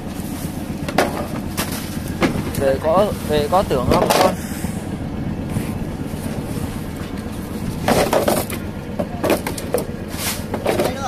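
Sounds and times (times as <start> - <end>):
boat engine drone: 0.0 - 11.0
metal trays clattering and scraping: 0.3 - 4.4, 7.7 - 11.0.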